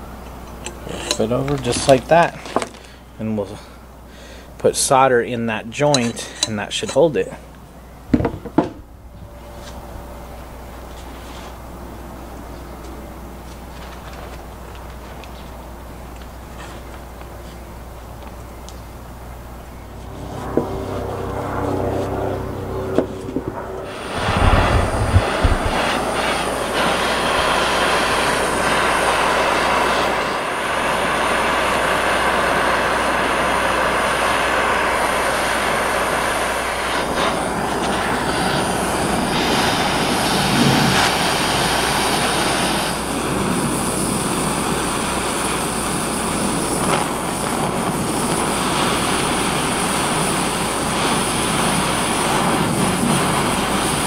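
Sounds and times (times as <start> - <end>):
gas torch flame rushing: 0.0 - 3.0, 5.9 - 7.1, 19.9 - 54.0
low thumps: 20.1 - 26.0.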